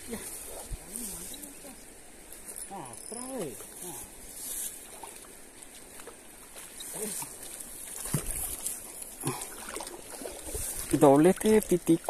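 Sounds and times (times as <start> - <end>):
trickling water: 0.0 - 12.0
high insect buzz: 0.9 - 4.8.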